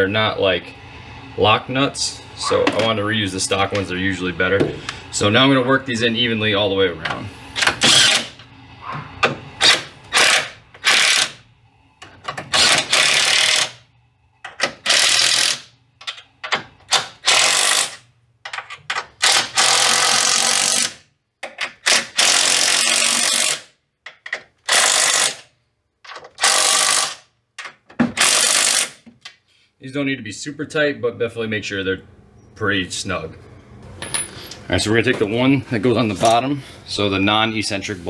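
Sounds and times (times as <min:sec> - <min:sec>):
impact wrench bursts: 0:07.6 - 0:08.5, 0:09.2 - 0:11.4, 0:12.0 - 0:13.8, 0:14.4 - 0:23.8, 0:24.6 - 0:25.5, 0:26.1 - 0:27.3, 0:28.0 - 0:29.1.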